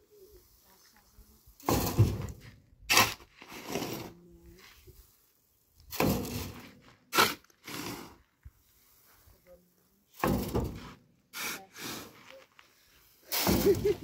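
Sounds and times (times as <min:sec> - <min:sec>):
shovel scraping sand and gravel: 0:00.0 - 0:14.0
shovel load flung with swish: 0:01.6 - 0:04.2, 0:05.9 - 0:08.2, 0:13.1 - 0:14.0.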